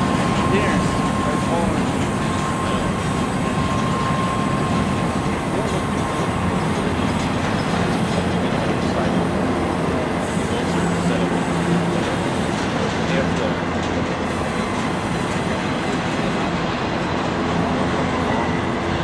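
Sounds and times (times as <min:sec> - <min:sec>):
steel wheels rolling on rail: 0:00.0 - 0:19.0
faint wheel squeal: 0:17.0 - 0:19.0.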